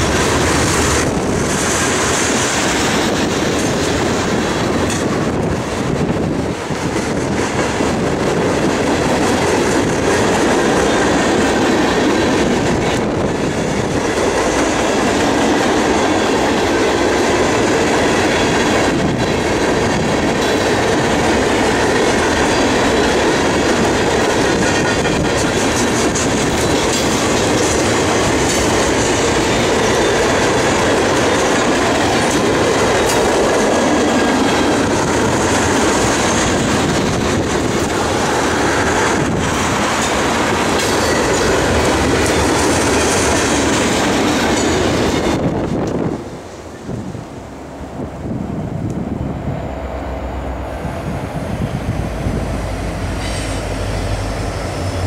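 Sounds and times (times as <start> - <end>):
freight train rumbling: 0.0 - 55.0
wheels clicking over rail joints: 16.3 - 46.1.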